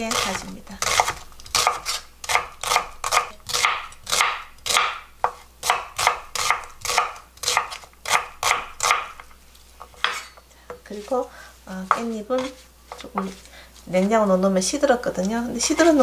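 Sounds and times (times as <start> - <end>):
knife chopping onion on board: 0.0 - 11.1, 11.8 - 13.4.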